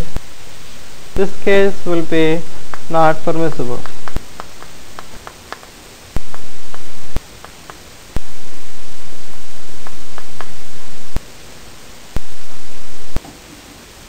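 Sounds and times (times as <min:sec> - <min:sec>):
loud static hiss: 0:00.0 - 0:14.0
chalk ticking on chalkboard: 0:02.7 - 0:08.0, 0:09.8 - 0:10.6.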